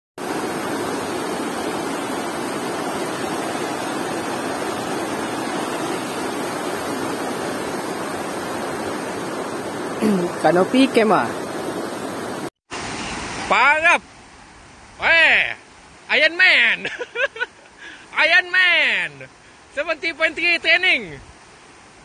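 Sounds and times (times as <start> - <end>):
river rushing over stones: 0.2 - 15.1.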